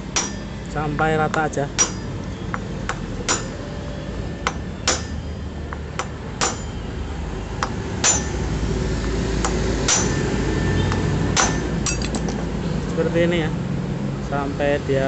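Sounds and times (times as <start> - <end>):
hammer striking metal: 0.0 - 3.7, 4.4 - 6.8, 7.6 - 8.5, 9.4 - 12.3.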